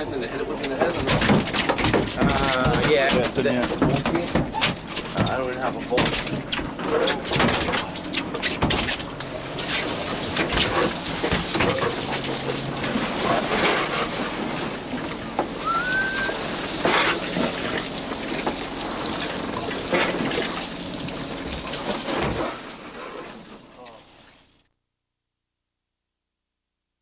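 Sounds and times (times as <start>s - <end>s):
water rushing and splashing: 9.3s - 24.5s
short rising squeak: 15.6s - 16.6s.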